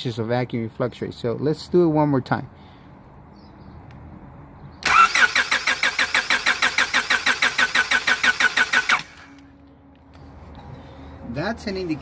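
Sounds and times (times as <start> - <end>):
car engine cranking: 4.8 - 9.4.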